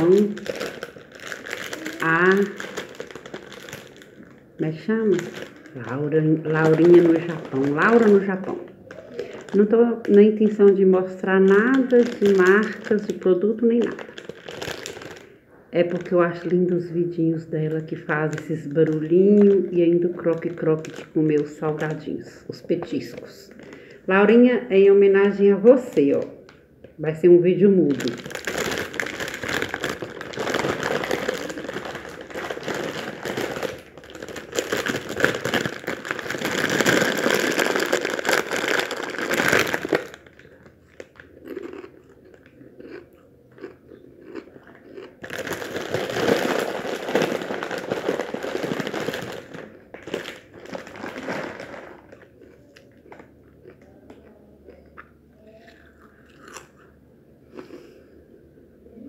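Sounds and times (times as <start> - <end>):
chewing crunchy chips: 0.0 - 4.6, 13.8 - 15.4, 27.9 - 58.0
plastic snack bags crinkling: 0.0 - 24.0, 27.6 - 56.9.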